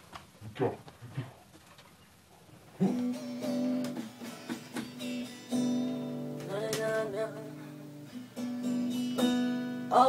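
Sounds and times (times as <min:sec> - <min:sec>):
acoustic guitar strums: 0:02.8 - 0:10.0.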